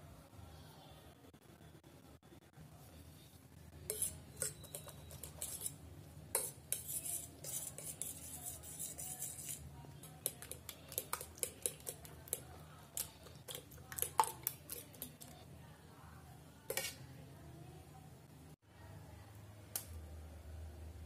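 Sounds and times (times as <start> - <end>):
spoon beating eggs in plastic bowl: 3.8 - 15.5, 16.7 - 17.0
wet squelch of mixture: 6.4 - 15.4.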